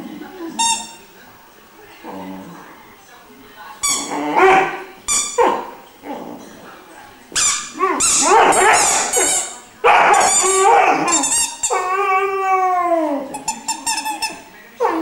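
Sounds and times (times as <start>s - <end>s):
puppy whining and howling: 10.1s - 13.4s.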